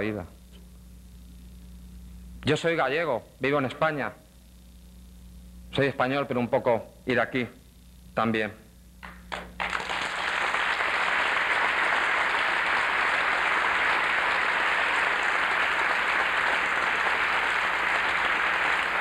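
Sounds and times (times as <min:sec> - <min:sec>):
large audience applauding: 0:09.0 - 0:19.0.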